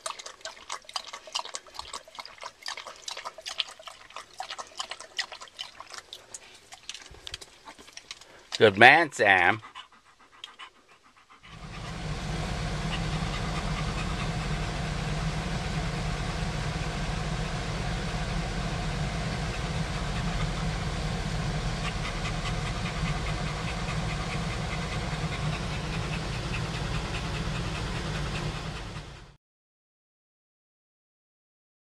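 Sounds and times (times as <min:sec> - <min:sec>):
dog panting: 0:00.0 - 0:29.4
engine and road rumble: 0:11.4 - 0:29.4.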